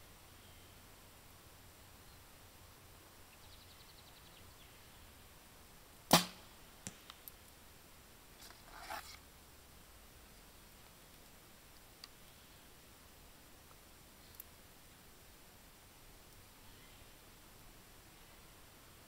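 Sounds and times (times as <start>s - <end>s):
soft rustle: 8.2s - 15.5s
faint clicks: 13.6s - 14.5s.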